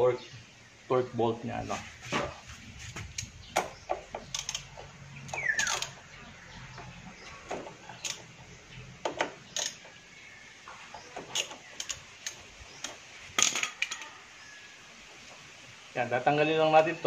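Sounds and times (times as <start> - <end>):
metal tool clicks and clinks: 4.3 - 6.0.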